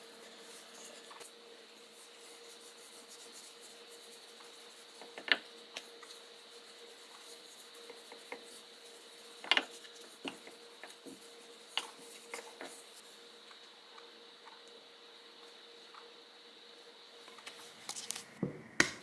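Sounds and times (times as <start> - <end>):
rolling pin rubbing over bread: 0.3 - 13.4.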